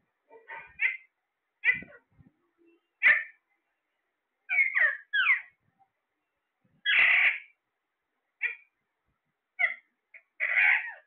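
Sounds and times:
parakeet squawks: 0.3s - 2.0s, 3.0s - 3.4s, 4.5s - 5.6s, 6.8s - 7.6s, 8.4s - 8.8s, 9.6s - 11.0s
harsh parakeet screech: 4.5s - 5.5s, 6.9s - 7.5s, 10.4s - 11.0s
short parakeet chirps: 6.8s - 7.5s.

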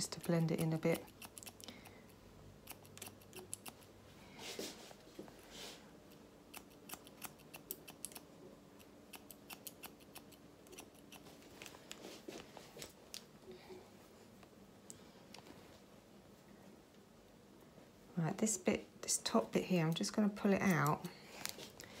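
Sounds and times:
scissors snipping hair: 0.0s - 3.9s, 6.1s - 12.0s, 19.9s - 21.6s
soft rustles: 4.2s - 5.9s, 11.2s - 13.1s, 13.9s - 16.9s.

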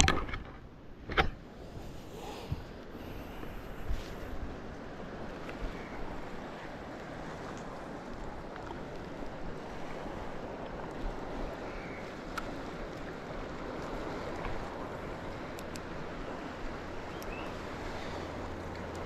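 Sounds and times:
wind: 0.0s - 19.0s
waves washing on shore: 1.0s - 19.0s
faint ticks: 7.5s - 9.2s, 17.1s - 17.5s.

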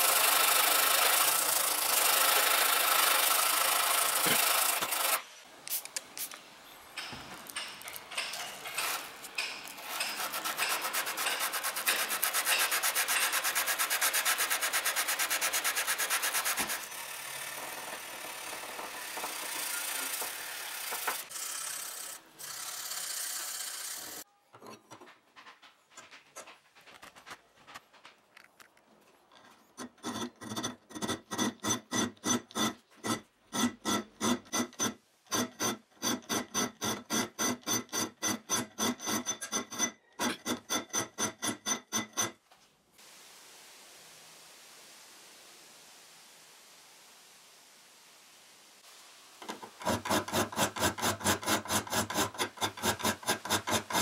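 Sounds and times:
file rasping on steel: 0.0s - 5.2s, 7.6s - 24.2s, 29.7s - 42.4s, 49.4s - 54.0s
sandpaper rubbing on steel blade: 9.8s - 16.9s, 49.6s - 54.0s.

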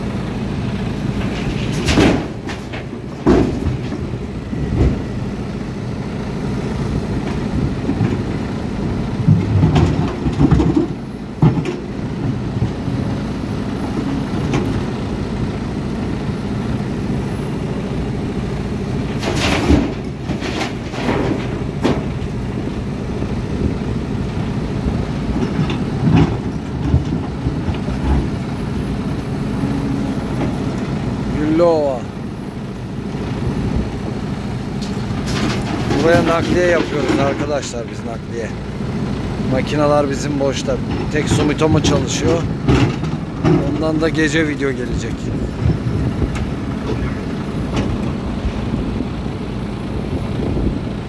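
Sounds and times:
excavator diesel engine under load: 0.0s - 51.0s
soil and rock crashing into truck: 1.2s - 4.1s, 19.2s - 22.1s.

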